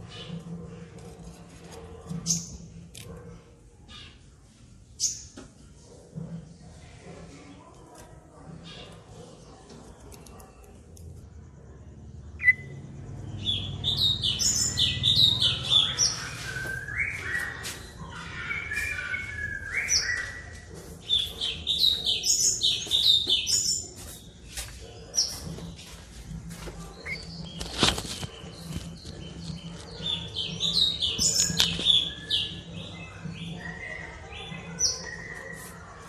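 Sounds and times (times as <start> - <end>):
songbird whistling song: 12.4 - 12.8, 13.4 - 23.8.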